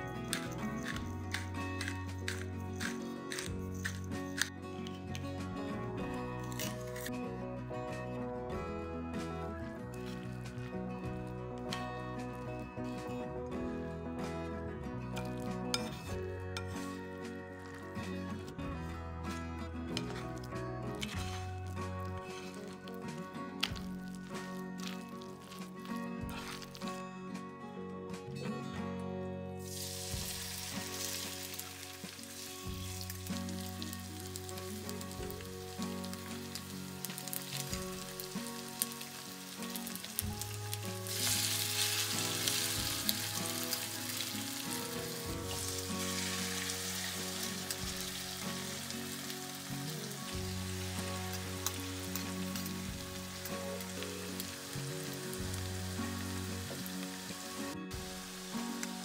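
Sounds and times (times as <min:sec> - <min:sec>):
food sizzling in hot oil: 0:23.6 - 0:26.8, 0:29.6 - 0:59.0.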